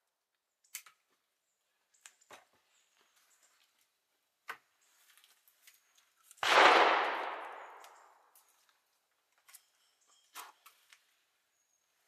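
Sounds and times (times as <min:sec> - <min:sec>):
gunshot echoing: 0:06.4 - 0:08.2.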